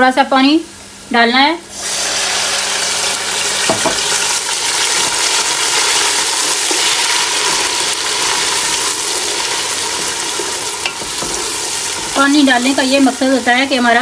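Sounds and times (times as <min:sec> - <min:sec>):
onions sizzling in oil: 0:01.7 - 0:14.0
wooden spoon stirring: 0:04.9 - 0:13.5.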